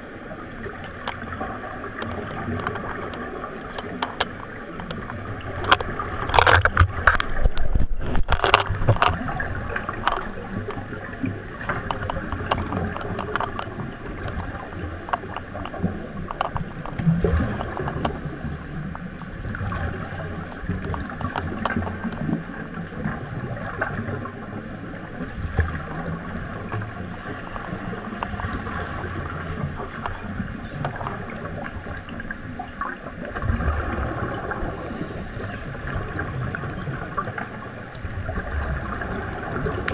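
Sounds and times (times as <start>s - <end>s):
bubbles gurgling underwater: 0.0s - 39.9s
muffled underwater rumble: 0.0s - 39.9s.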